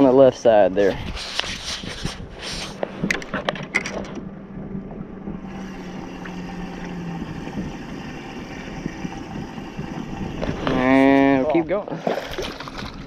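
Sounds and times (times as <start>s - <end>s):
boat engine low hum: 0.0s - 13.0s
cloth rubbing on microphone: 0.8s - 3.0s
handling knocks and clicks: 2.8s - 4.3s.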